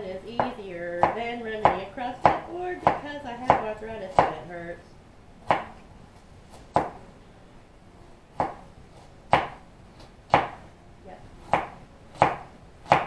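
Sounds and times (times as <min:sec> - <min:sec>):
knife chopping vegetables: 0:00.3 - 0:04.5, 0:05.4 - 0:05.8, 0:06.5 - 0:07.0, 0:08.3 - 0:10.7, 0:11.4 - 0:13.0.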